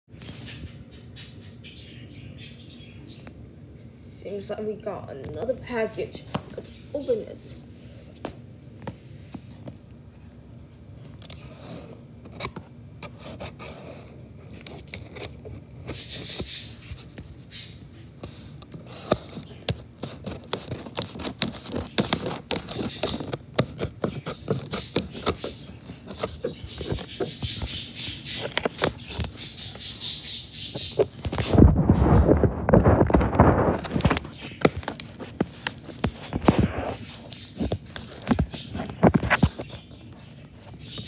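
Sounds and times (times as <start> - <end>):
plastic packaging crinkling: 18.6 - 30.1, 30.7 - 41.0
cardboard box being opened: 18.7 - 29.5, 30.8 - 39.7.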